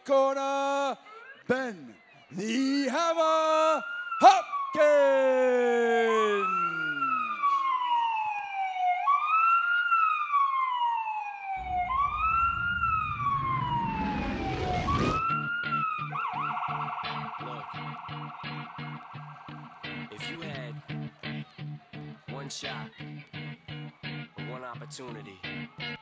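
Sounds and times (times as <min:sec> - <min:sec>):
siren wail over loudspeaker: 0:00.7 - 0:21.4, 0:25.3 - 0:26.0
low rumble and rising whoosh: 0:11.6 - 0:15.6.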